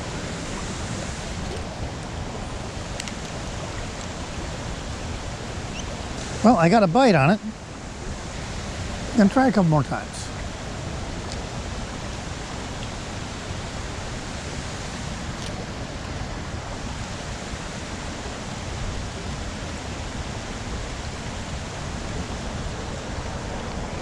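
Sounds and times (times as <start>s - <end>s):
creek water rushing: 0.0s - 24.0s.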